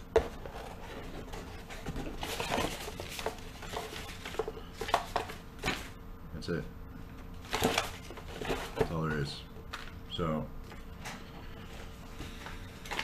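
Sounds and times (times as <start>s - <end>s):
paper and cardboard rustling: 0.1s - 6.0s, 7.4s - 9.3s.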